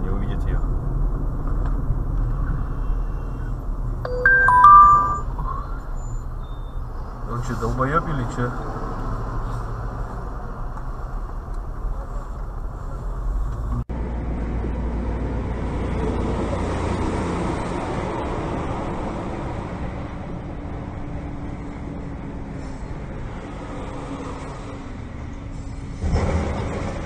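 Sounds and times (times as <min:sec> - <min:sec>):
vehicle engine and road noise: 0:00.0 - 0:27.0
hissy highway road noise: 0:06.8 - 0:26.6.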